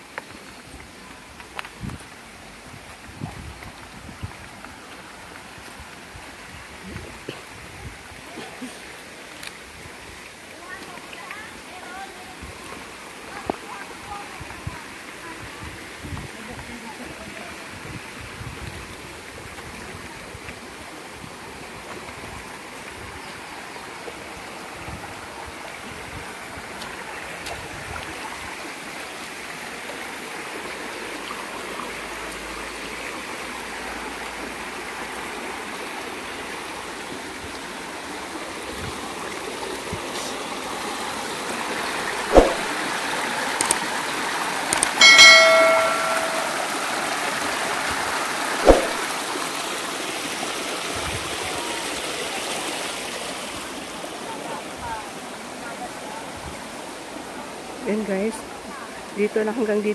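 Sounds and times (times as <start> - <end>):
stream running over rocks: 0.0 - 59.9
sharp click: 44.7 - 46.7
short bell-like ding: 45.0 - 47.0, 48.6 - 49.0.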